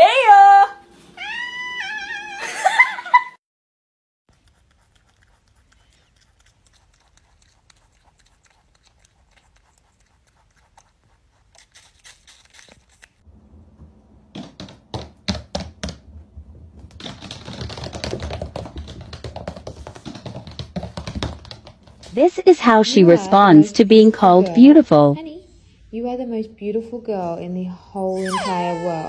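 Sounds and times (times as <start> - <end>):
pet chewing apple: 4.3 - 13.2.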